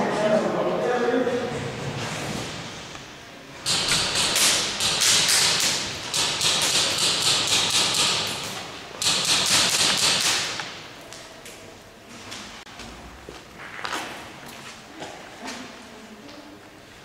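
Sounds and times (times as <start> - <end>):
airsoft guns firing bursts: 3.7 - 10.8.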